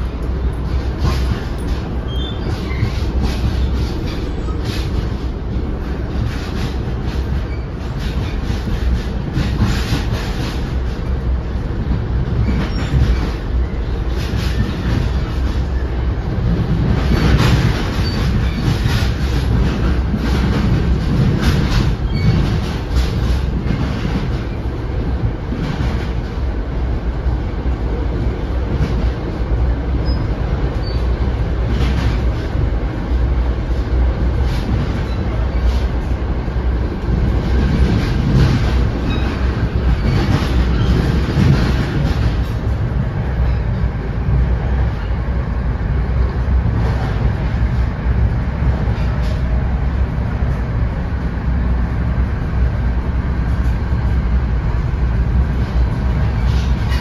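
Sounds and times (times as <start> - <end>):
wheels clacking over rail joints: 0.0 - 11.3, 11.9 - 26.4, 34.2 - 43.7
train wheels rumbling on rails: 0.0 - 57.0.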